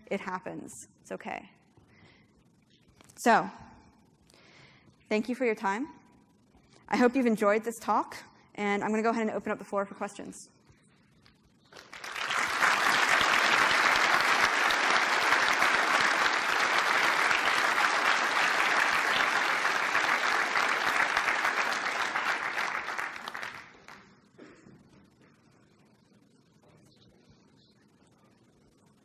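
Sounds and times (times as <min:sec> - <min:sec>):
audience applauding: 0:11.8 - 0:24.1.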